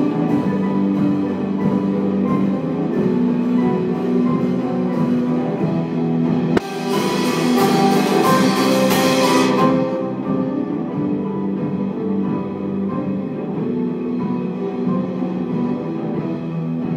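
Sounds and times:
live band music: 0:00.0 - 0:16.9.

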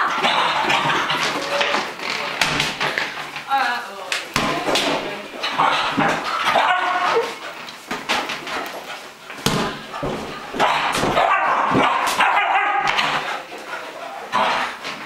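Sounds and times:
dog barking and yipping: 0:06.0 - 0:07.4, 0:10.6 - 0:13.2.

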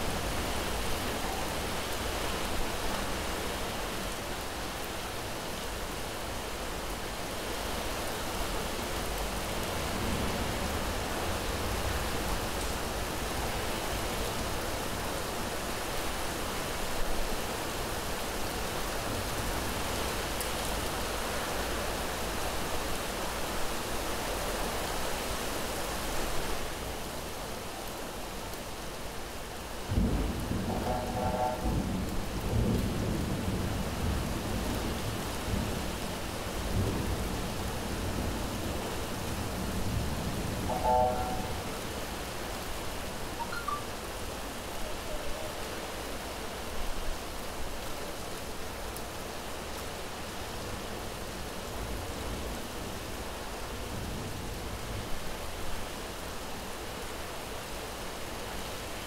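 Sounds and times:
heavy rain: 0:00.0 - 0:59.0
thunder clap: 0:29.9 - 0:33.5
low rolling thunder: 0:29.9 - 0:42.2.

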